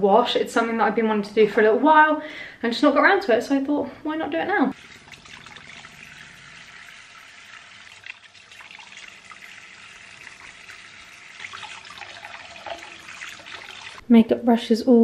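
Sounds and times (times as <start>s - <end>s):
tap water running into sink: 4.8s - 14.0s.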